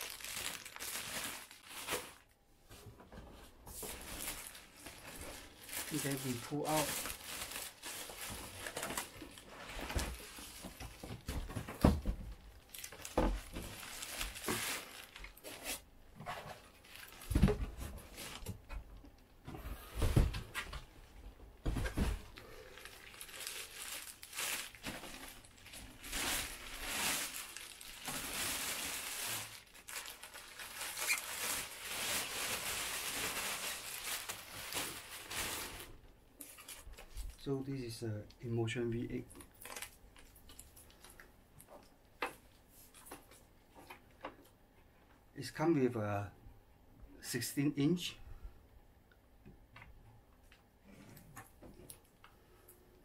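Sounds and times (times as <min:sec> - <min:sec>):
plastic wrapping crinkling: 0:00.0 - 0:02.4, 0:03.7 - 0:18.6, 0:21.7 - 0:37.6, 0:38.6 - 0:43.5.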